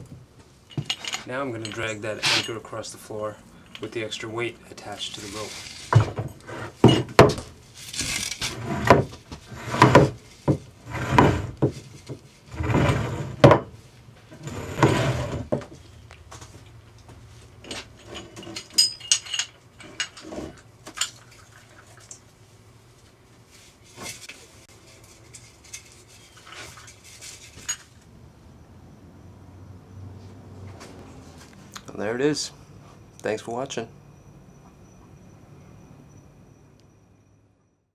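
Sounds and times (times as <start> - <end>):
anchor scraping across floor: 0.8 - 2.6, 4.8 - 13.6, 14.3 - 15.8, 19.8 - 20.7
metal clinks and taps: 17.0 - 20.2.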